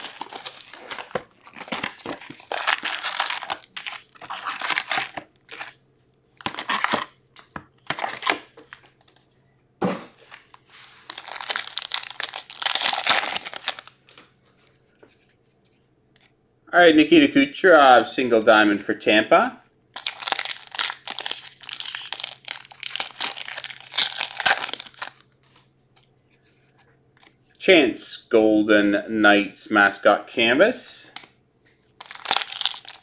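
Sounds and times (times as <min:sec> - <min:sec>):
foil wrappers crinkling: 0:00.0 - 0:05.8, 0:06.4 - 0:07.1, 0:10.2 - 0:14.2, 0:20.0 - 0:25.7, 0:32.0 - 0:33.0.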